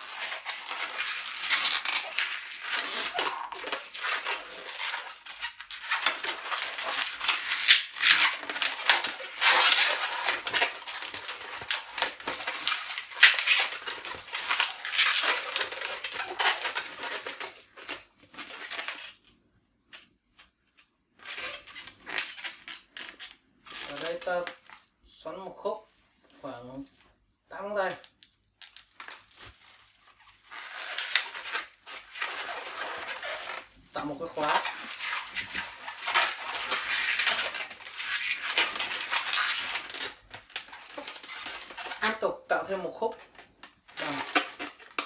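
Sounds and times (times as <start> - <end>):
balloon being twisted: 0.0 - 19.2, 21.2 - 24.7, 30.1 - 33.8, 43.6 - 45.0.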